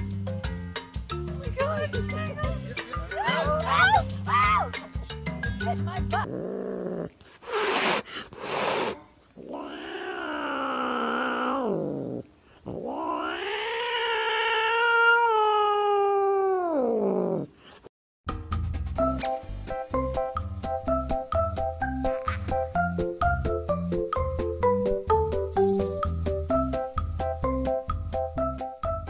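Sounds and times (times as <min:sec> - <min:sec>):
cat meowing: 0:09.4 - 0:12.0, 0:12.7 - 0:17.5.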